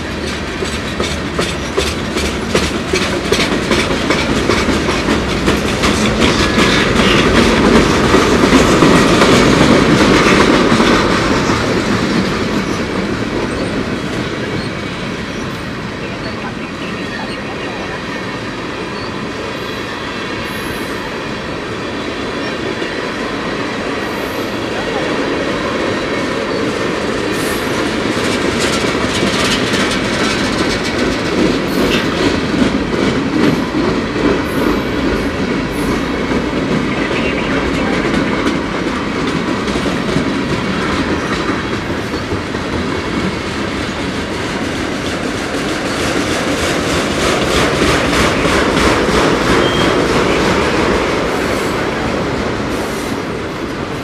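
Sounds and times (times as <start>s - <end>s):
wheels clicking over rail joints: 0.0s - 14.7s, 26.4s - 51.3s
freight train wheels rumbling: 0.0s - 54.0s.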